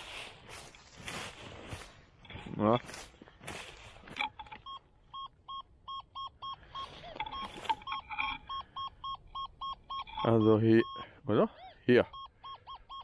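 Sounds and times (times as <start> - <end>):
metal detector beeping: 3.6 - 13.0.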